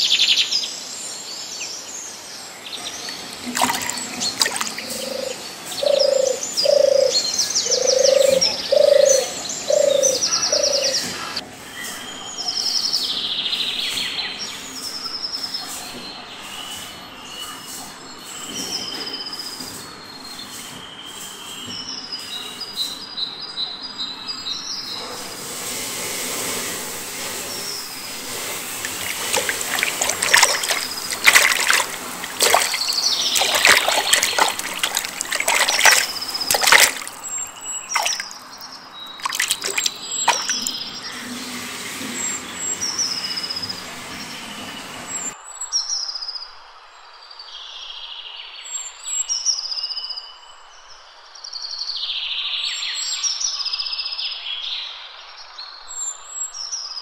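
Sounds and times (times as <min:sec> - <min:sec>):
birds chirping: 0:02.6 - 0:11.4, 0:27.4 - 0:41.4
fish thrashing in water: 0:03.0 - 0:05.4, 0:28.2 - 0:40.8.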